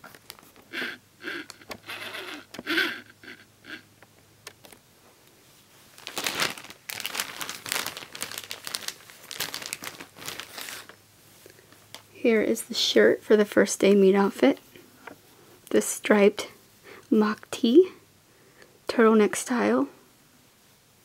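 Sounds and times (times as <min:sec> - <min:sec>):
plastic bag crinkling: 0:00.0 - 0:02.8, 0:05.9 - 0:11.0.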